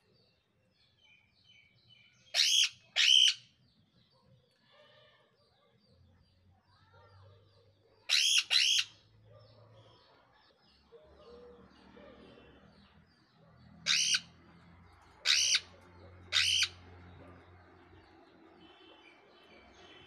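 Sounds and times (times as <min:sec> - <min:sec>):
parrots screeching: 0:02.3 - 0:03.4, 0:08.1 - 0:09.0, 0:13.8 - 0:14.3, 0:15.2 - 0:16.8.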